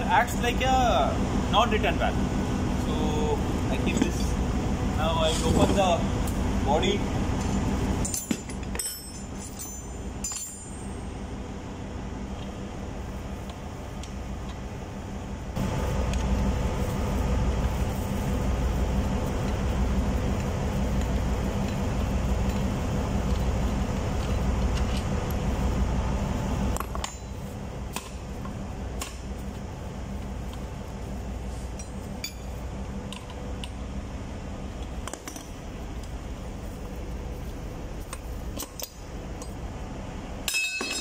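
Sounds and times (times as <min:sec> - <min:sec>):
pulsing machinery rumble: 0:00.0 - 0:41.0
metal clinks of spanner: 0:08.0 - 0:11.1, 0:40.4 - 0:41.0.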